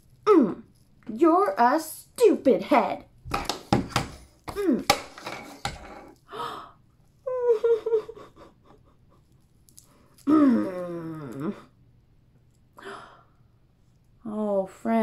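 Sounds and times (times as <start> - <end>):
woman gasping and whimpering: 6.3 - 6.8.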